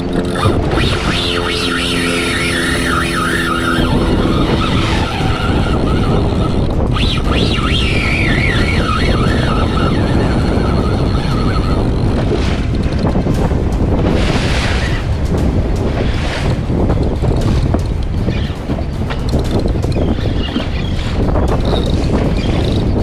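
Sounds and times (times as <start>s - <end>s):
high-pitched whine: 0.0s - 12.6s
rough water washing: 0.0s - 23.0s
wind buffeting microphone: 0.0s - 23.0s.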